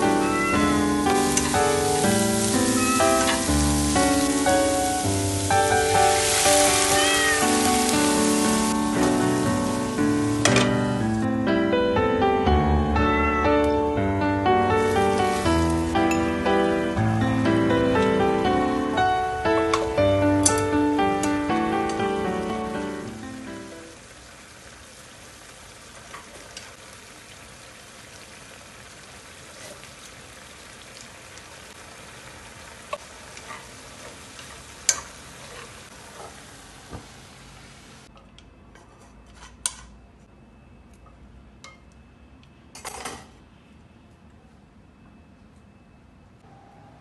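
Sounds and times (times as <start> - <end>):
vegetables sizzling in a wok: 0.0 - 11.2, 14.6 - 38.1.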